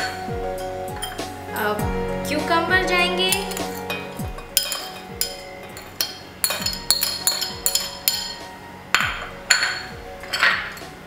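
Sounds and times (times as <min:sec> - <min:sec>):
background music with a beat: 0:00.0 - 0:11.0.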